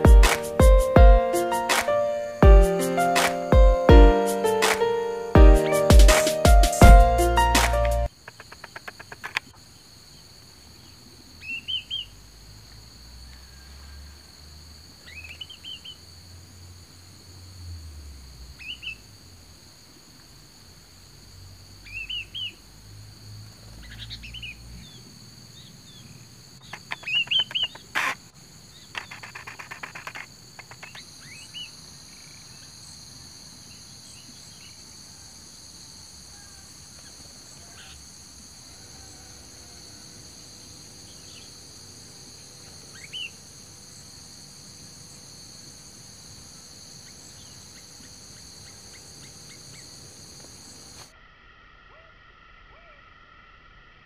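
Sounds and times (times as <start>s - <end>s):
rapid rattling bird call: 8.1s - 9.5s, 26.6s - 31.5s
bird chirping calls: 25.9s - 28.2s.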